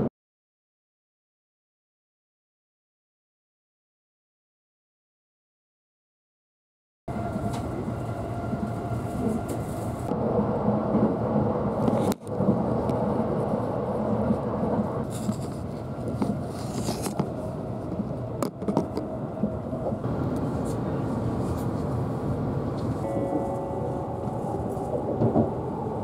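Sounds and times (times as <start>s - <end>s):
train wheels rumbling on rail: 7.1s - 26.0s.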